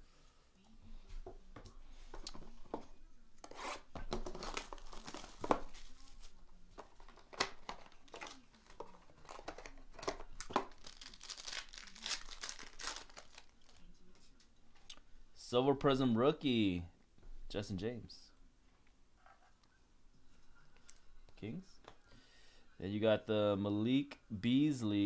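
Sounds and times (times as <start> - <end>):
cardboard and wrapper tearing: 3.5 - 13.9.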